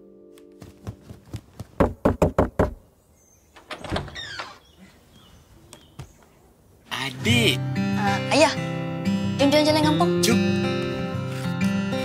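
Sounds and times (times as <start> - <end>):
door creaking open: 3.5 - 4.8.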